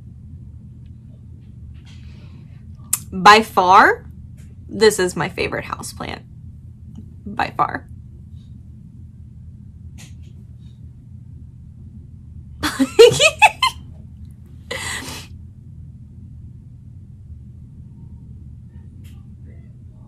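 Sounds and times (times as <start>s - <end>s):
low steady hum: 0.0s - 20.0s
woman laughing: 12.6s - 13.8s, 14.7s - 15.2s.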